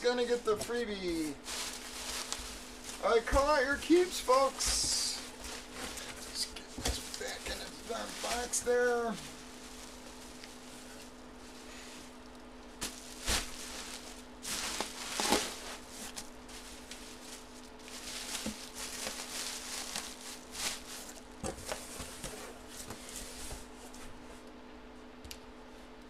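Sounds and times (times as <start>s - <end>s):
faint steady hum: 0.0s - 26.0s
bubble wrap crinkling: 0.2s - 23.8s.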